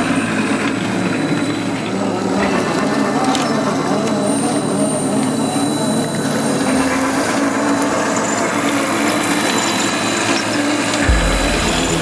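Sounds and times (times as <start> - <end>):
deeper hum: 11.0 - 12.0.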